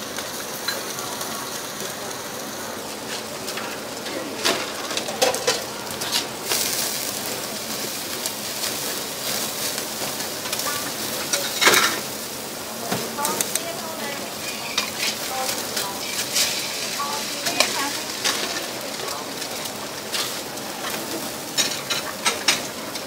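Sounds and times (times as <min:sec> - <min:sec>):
meat sizzling on a grill: 0:00.0 - 0:23.0
metal tongs clacking on grate: 0:03.5 - 0:07.3, 0:08.2 - 0:12.2, 0:12.9 - 0:23.0.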